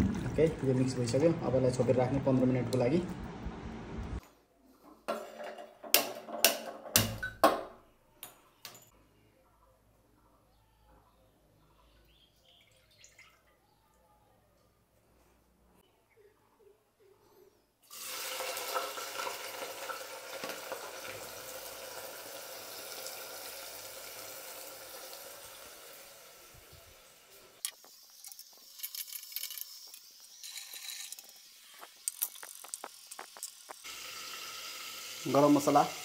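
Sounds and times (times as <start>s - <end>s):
frying hiss with crackles: 17.8s - 36.0s
onions sizzling in hot oil: 17.9s - 36.0s.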